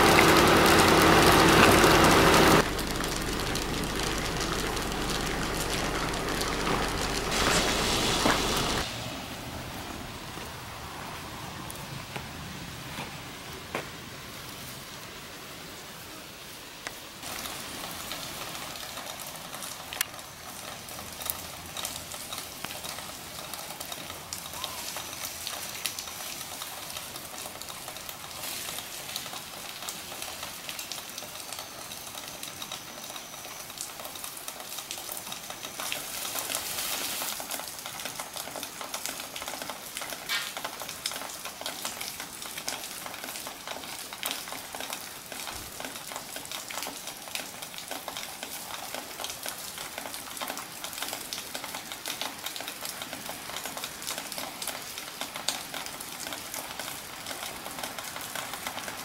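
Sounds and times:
drizzle pattering on foliage: 0.0 - 9.2, 17.2 - 59.0
leaf rustles: 0.0 - 31.3, 34.8 - 38.2.

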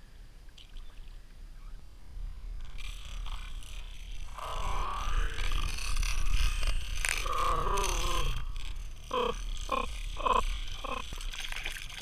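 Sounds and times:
low wind rumble: 0.0 - 11.3.

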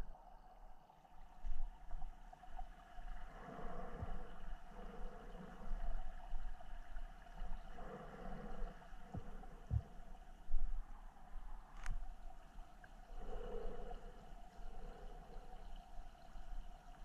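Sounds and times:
muffled underwater water movement: 0.0 - 17.0
dull low thumps underwater: 8.6 - 11.9.

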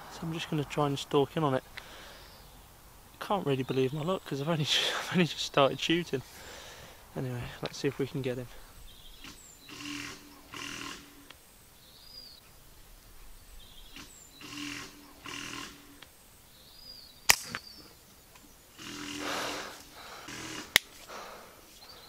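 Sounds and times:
air rifle shot crack: 17.3 - 17.8
sharp click: 17.3 - 18.5.

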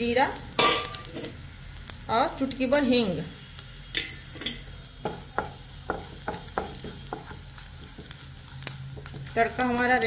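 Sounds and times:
oil sizzling: 0.0 - 10.0
spatula scraping and tapping pan: 3.9 - 10.0.

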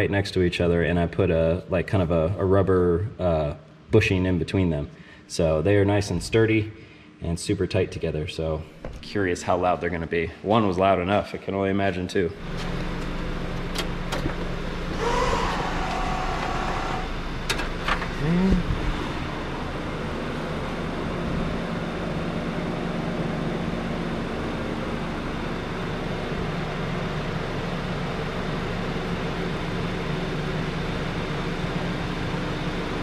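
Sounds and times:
electric fuel pumps humming: 12.3 - 33.0.

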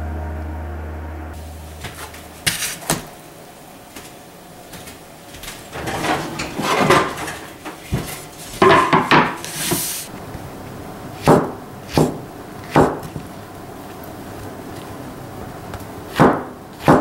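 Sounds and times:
clattering handling sounds: 5.7 - 9.4.

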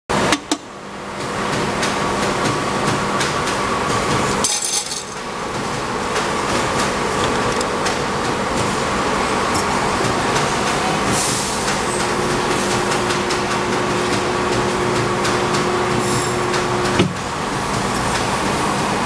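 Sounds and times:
welding machine humming: 2.4 - 19.0
sharp mechanical clicks and knocks: 5.1 - 8.7.

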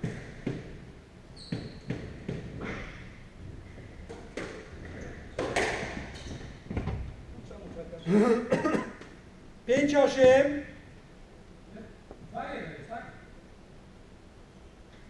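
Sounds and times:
racquet striking ball: 4.0 - 6.5.

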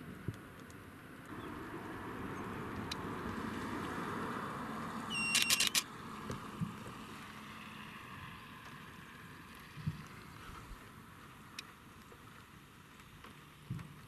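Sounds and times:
sharp clicks: 5.1 - 5.9.

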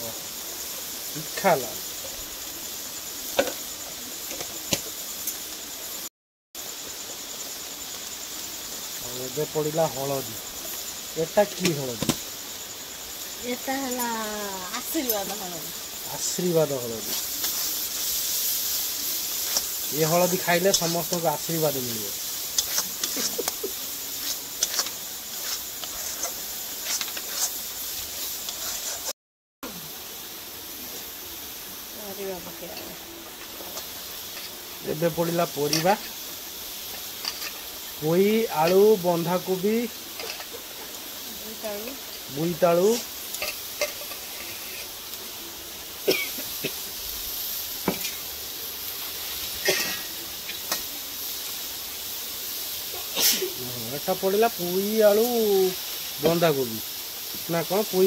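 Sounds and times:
faint hiss from pan: 0.0 - 58.0
paste sizzling in hot oil: 0.0 - 58.0
metal spatula scraping a pan: 17.0 - 29.1, 36.9 - 37.7, 40.1 - 40.8, 43.3 - 45.0.

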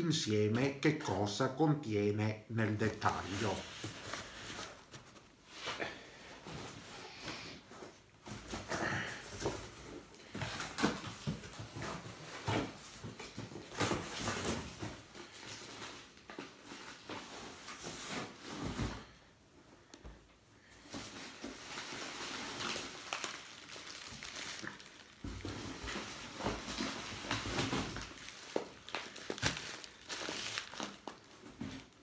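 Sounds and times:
cardboard packaging rustling: 2.8 - 5.7, 20.7 - 32.0.

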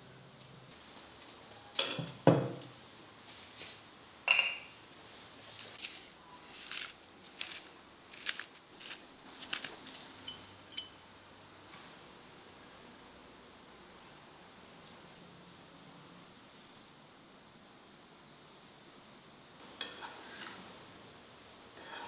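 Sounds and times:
ringing ceramic clink: 4.3 - 4.8
pepper grinder grinding: 5.6 - 10.4.

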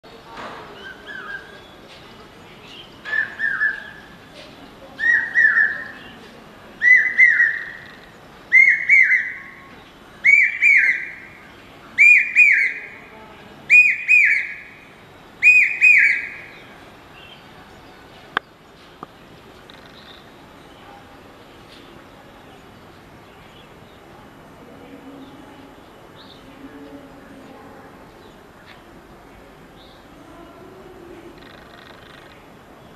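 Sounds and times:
shrill three-note bird call: 12.0 - 12.9, 13.7 - 14.7, 15.4 - 16.4.

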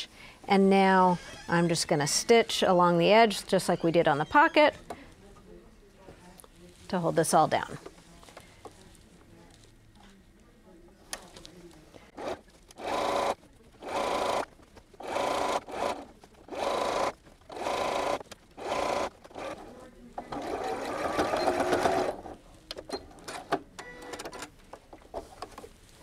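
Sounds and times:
sewing machine stitching: 12.2 - 24.5.

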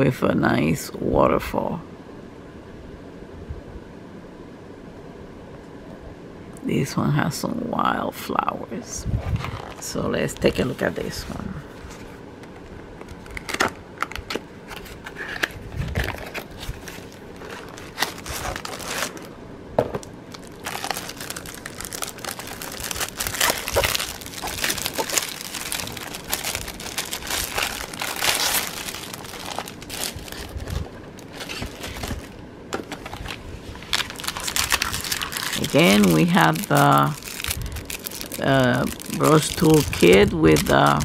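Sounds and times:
plastic packaging crinkling: 11.8 - 19.4, 20.0 - 41.0.

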